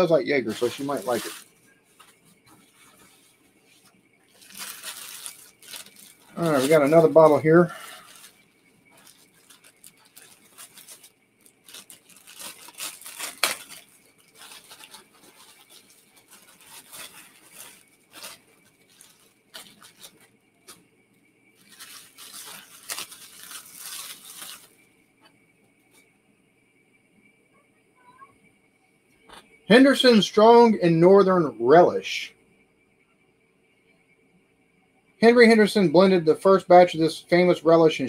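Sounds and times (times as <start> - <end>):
wrapping rustling and tearing: 0.4 - 20.8, 21.6 - 24.8.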